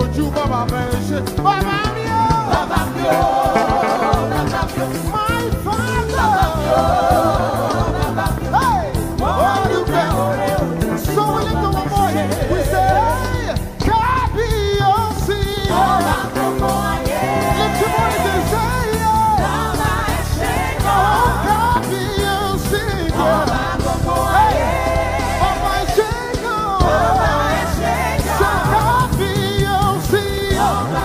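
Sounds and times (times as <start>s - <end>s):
band with bass and drums: 0.0s - 31.0s
person singing with vibrato: 2.5s - 8.0s.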